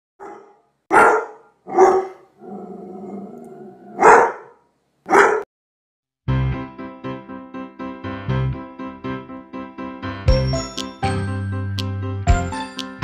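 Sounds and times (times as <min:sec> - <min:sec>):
dog barking: 0:00.2 - 0:05.5
music: 0:06.2 - 0:13.0.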